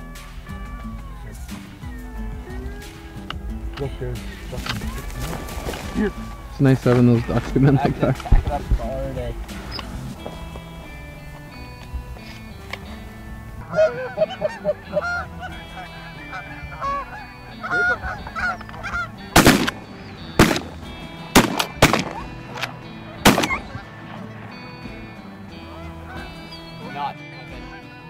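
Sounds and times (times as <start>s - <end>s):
geese honking: 0.0s - 28.0s
shotgun shots: 19.4s - 23.8s.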